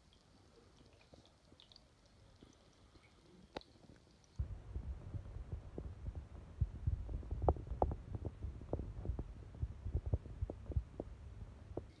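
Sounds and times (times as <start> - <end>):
aquarium equipment humming: 4.4 - 12.0
soft low thumps: 4.4 - 12.0.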